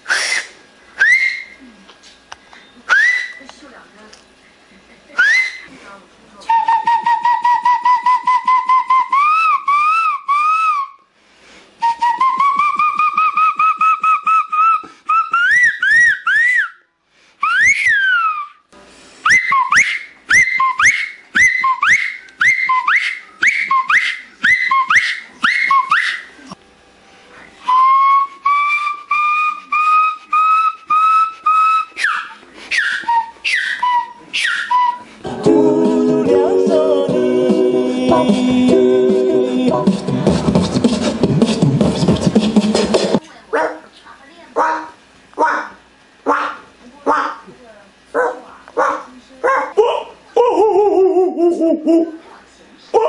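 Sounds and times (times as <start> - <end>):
man whistling: 0.1 - 1.6, 2.9 - 3.4, 5.2 - 5.7, 6.5 - 11.0, 11.8 - 18.6, 19.3 - 26.3, 27.6 - 35.2.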